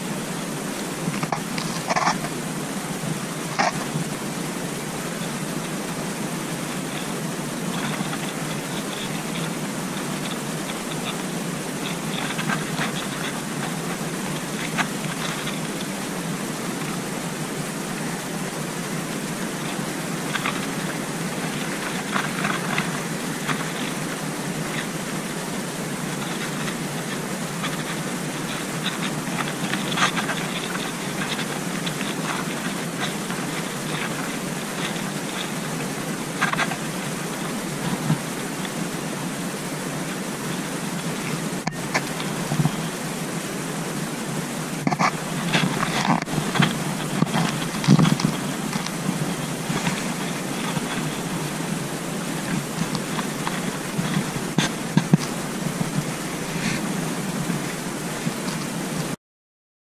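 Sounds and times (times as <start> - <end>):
outdoor hiss: 0.0 - 59.2
wind rushing on microphone: 0.0 - 59.2
small clicks and ticks: 0.8 - 2.4, 3.6 - 4.1, 6.7 - 16.0, 19.4 - 38.8, 44.8 - 56.3, 57.3 - 58.8
faint clicks or rustles: 26.1 - 38.8.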